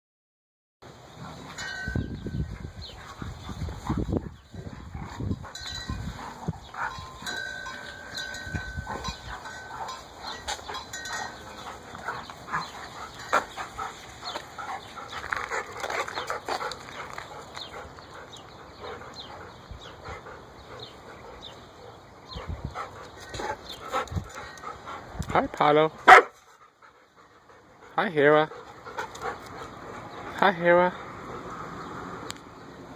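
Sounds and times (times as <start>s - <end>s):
dogs scuffling: 6.1s - 18.0s.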